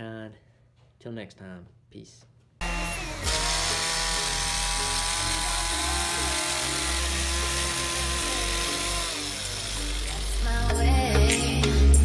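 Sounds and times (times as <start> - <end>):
blades cutting shrub: 2.6 - 10.6
hedge trimmer motor whine: 2.6 - 10.7.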